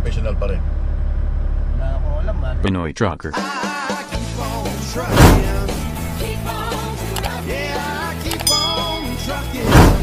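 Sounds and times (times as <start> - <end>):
sung melody over bass line: 8.4 - 9.7.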